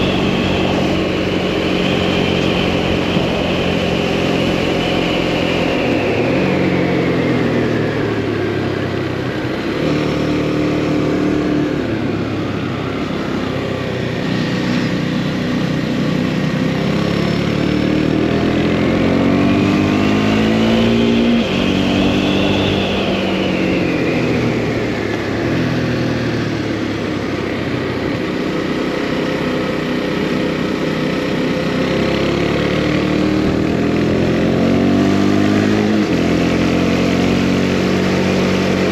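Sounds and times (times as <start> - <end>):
wind rushing: 0.0 - 7.4
motorcycle engine accelerating: 0.0 - 38.9.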